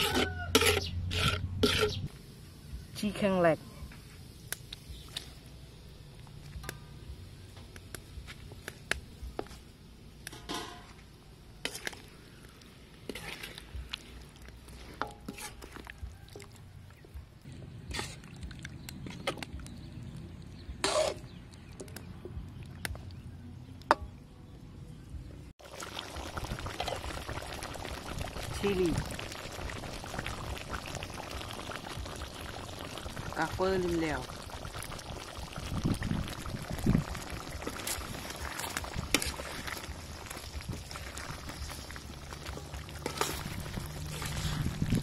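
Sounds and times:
metal ladle scraping a wok: 0.0 - 2.1, 10.3 - 11.0, 11.6 - 12.1, 13.0 - 15.9, 17.9 - 18.3, 20.8 - 21.4, 37.8 - 39.8, 42.5 - 44.8.

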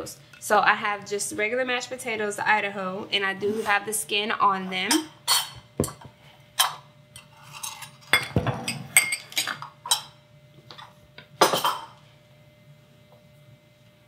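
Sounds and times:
kitchenware clattering: 4.9 - 12.0.

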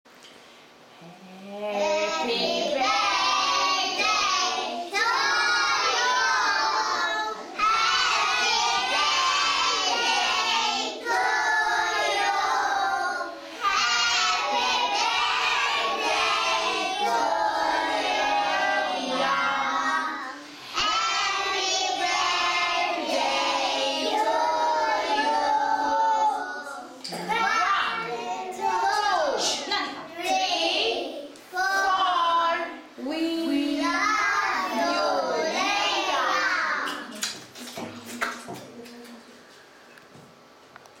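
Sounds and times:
children singing: 2.1 - 27.4.

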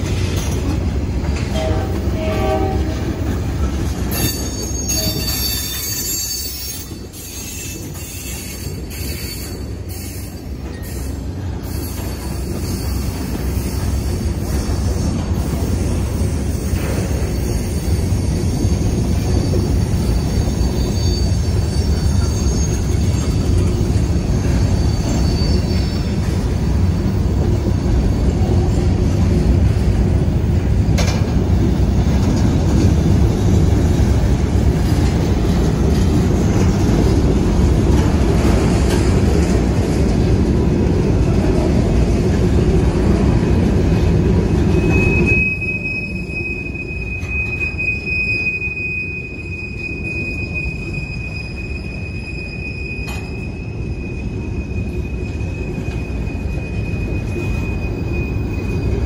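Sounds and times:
train wheels rumbling on rail: 0.0 - 59.0
high wheel squeal: 4.1 - 28.7, 44.6 - 59.0.

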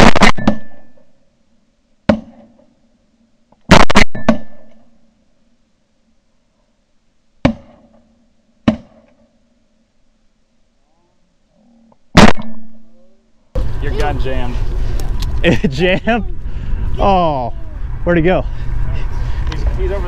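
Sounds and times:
shotguns firing: 0.0 - 1.0, 3.7 - 4.8, 12.2 - 12.9.

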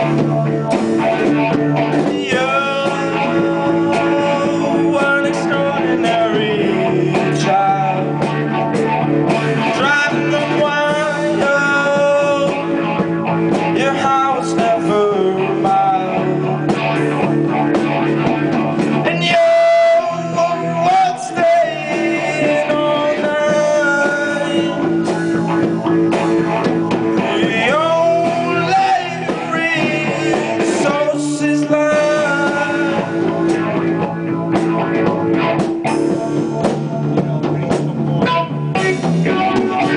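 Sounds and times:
man singing lead vocal: 0.0 - 17.2, 18.8 - 39.9
electric guitars playing: 0.0 - 39.9.

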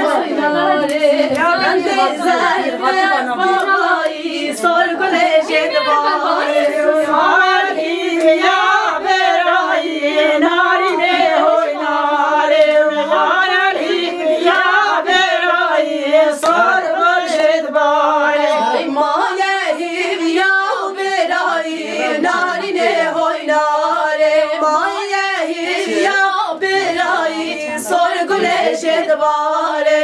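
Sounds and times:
women singing unaccompanied: 0.0 - 30.0
hand claps: 0.8 - 1.7, 3.5 - 4.2, 12.5 - 12.8, 16.4 - 16.8.

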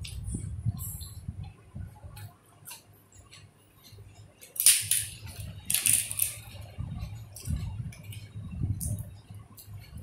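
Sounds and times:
crisp cracker snapping: 4.4 - 6.4.

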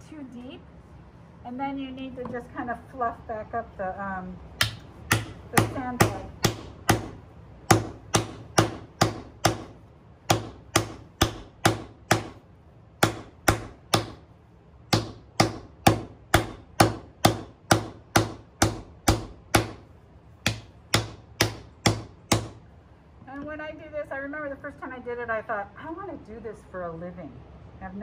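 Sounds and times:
hammer on copper: 4.6 - 12.4, 13.0 - 14.2, 14.9 - 22.6.

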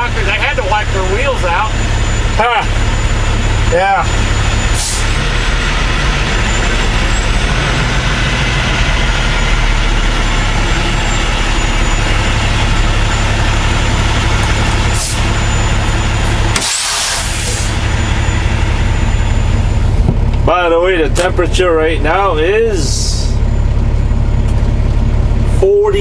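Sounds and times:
truck diesel engine running: 0.0 - 26.0
air brake hiss: 16.6 - 17.7.

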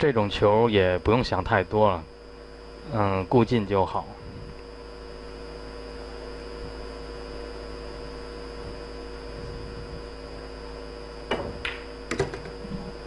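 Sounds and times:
electrical mains hum: 0.0 - 13.0
ball dropping into pocket: 11.3 - 12.6
pool balls clicking: 11.3 - 12.9.

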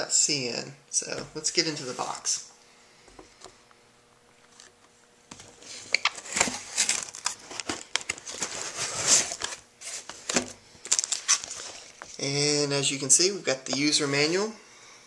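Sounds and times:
packing rustling and crinkling: 5.3 - 12.2
cardboard lid scraping: 5.6 - 10.5.

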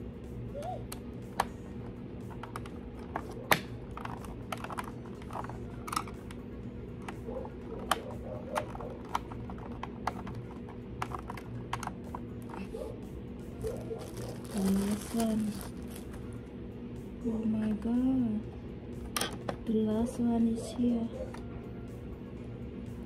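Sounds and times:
hard plastic parts clicking: 2.3 - 6.4, 7.8 - 12.6.

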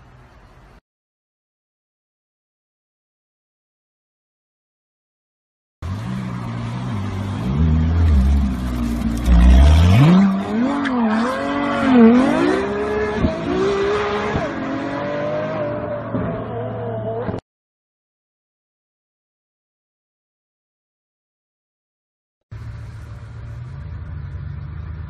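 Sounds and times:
sports car engine revving: 5.8 - 17.4.

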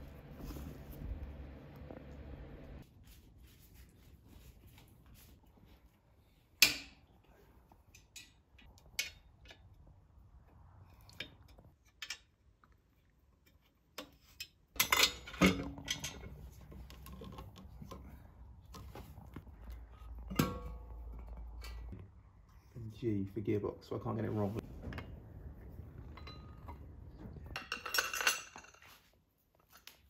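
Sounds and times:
metal parts clinking and knocking: 14.0 - 18.0, 27.5 - 28.8.

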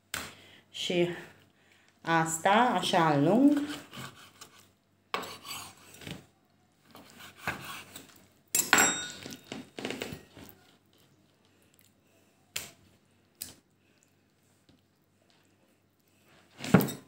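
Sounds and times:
knife cutting meat on wooden board: 3.5 - 4.6, 5.2 - 5.9, 6.9 - 8.1.

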